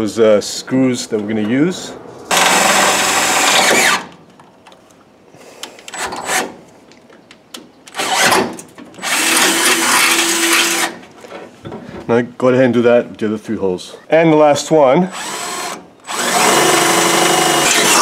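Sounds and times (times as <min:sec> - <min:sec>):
cordless drill drilling metal: 0:02.3 - 0:04.1, 0:07.9 - 0:11.0, 0:15.1 - 0:18.0.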